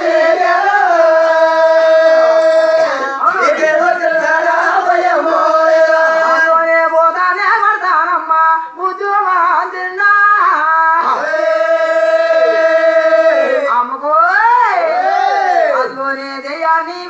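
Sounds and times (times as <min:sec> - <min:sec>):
person singing long notes: 0:11.0 - 0:13.7.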